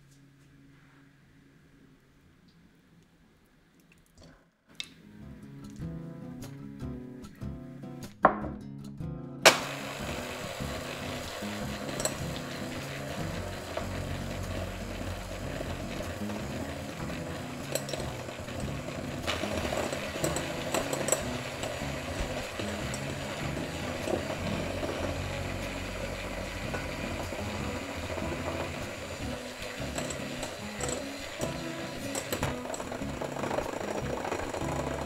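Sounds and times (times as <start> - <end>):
electric hand mixer running: 9.5 - 35.0
beaters clinking against glass: 17.6 - 23.2, 29.8 - 35.0.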